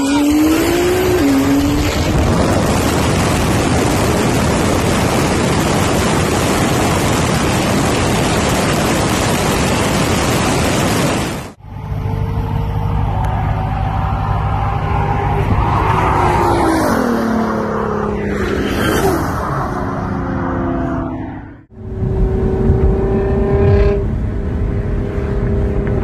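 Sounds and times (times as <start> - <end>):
car engine revving: 0.0 - 26.0
wind buffeting microphone: 0.6 - 11.4, 21.8 - 26.0.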